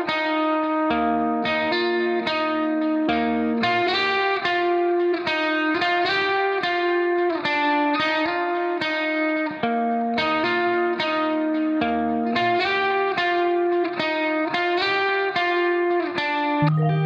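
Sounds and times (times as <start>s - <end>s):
plucked guitar melody: 0.0s - 17.0s.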